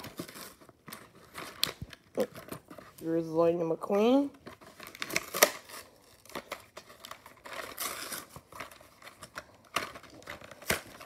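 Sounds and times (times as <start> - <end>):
package tearing and crinkling: 0.0 - 3.1, 4.3 - 11.0.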